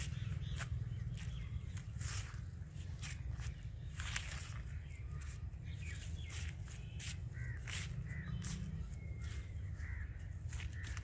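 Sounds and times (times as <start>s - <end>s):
footsteps through grass: 0.0s - 11.0s
short bird calls: 0.0s - 11.0s
steady low rumble: 0.0s - 11.0s.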